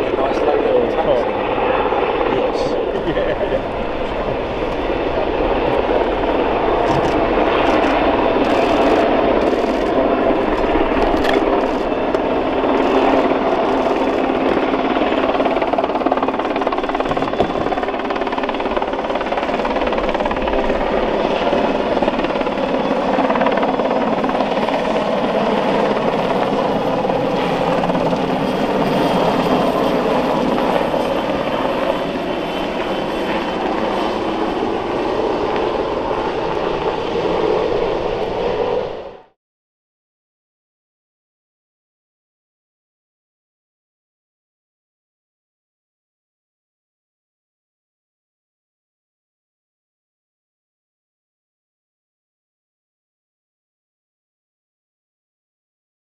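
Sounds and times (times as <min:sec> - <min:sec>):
helicopter engines and rotor: 0:00.0 - 0:39.4.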